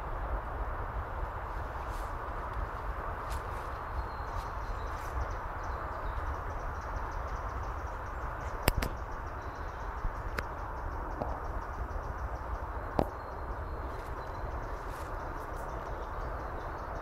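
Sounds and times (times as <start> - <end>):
low rumble and hiss: 0.0 - 17.0
sharp cracks: 8.6 - 9.0.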